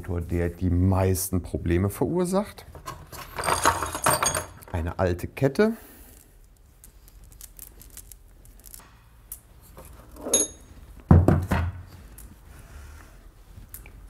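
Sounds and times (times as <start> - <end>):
chain links clicking: 6.5 - 9.4
ringing metallic clink: 10.3 - 10.8.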